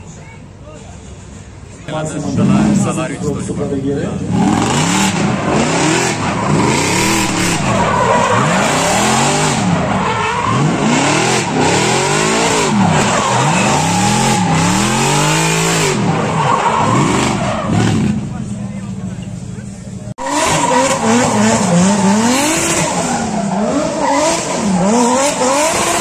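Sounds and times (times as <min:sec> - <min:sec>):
car engine revving: 0:02.0 - 0:26.0
tyres squealing: 0:04.3 - 0:18.3.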